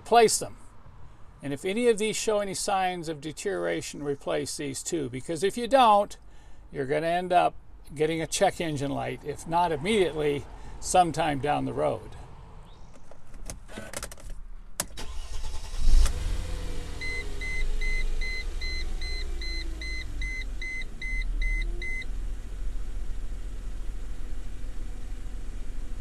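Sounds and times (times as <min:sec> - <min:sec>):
car engine starting and idling: 0:08.4 - 0:26.0
dashboard warning chime beeping: 0:17.0 - 0:22.1.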